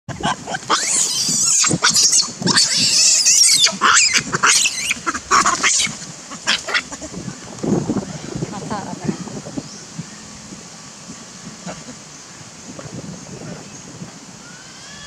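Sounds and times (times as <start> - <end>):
baby monkey screaming: 0.2 - 7.1, 14.4 - 15.0.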